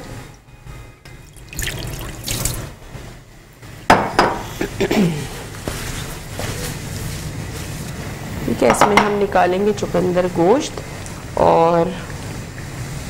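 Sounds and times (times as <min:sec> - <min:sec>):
water dripping and splashing: 0:01.3 - 0:02.7
crockery clinking and knocking: 0:03.9 - 0:04.5, 0:08.7 - 0:09.3.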